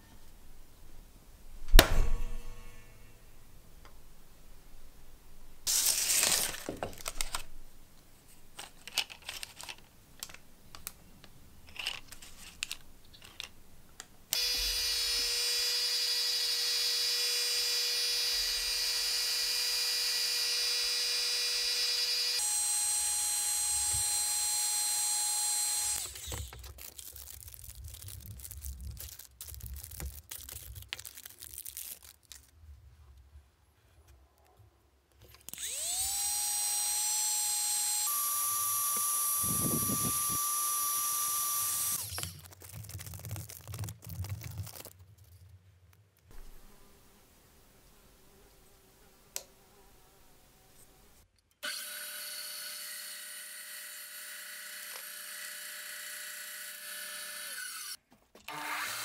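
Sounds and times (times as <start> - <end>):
paper and wooden blocks rustling: 5.6 - 7.6, 8.2 - 13.6, 26.0 - 33.3, 42.0 - 46.5
heat gun blower whine: 14.4 - 26.6, 35.6 - 42.3.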